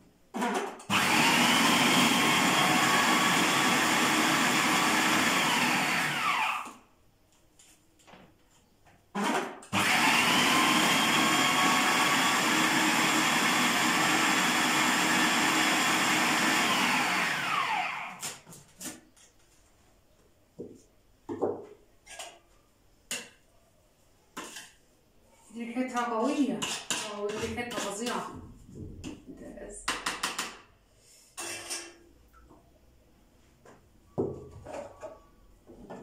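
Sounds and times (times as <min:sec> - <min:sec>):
food processor whirring: 0:00.4 - 0:06.8, 0:09.2 - 0:18.3.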